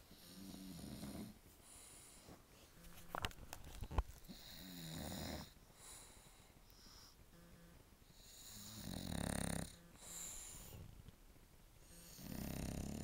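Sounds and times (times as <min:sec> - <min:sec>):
dog snoring: 0:00.1 - 0:02.1, 0:04.3 - 0:10.9, 0:11.8 - 0:13.0.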